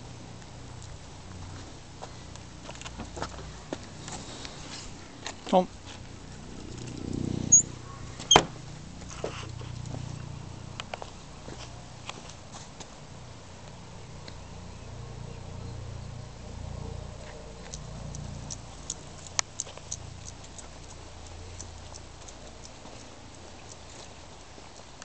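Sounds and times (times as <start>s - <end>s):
steady low rumble: 0.0s - 25.0s
footsteps on dirt path: 1.4s - 6.5s, 11.0s - 13.0s.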